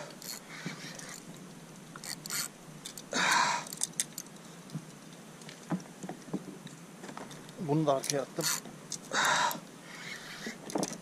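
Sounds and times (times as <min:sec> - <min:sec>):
gear clicks and knocks: 0:00.0 - 0:09.6, 0:10.5 - 0:11.0.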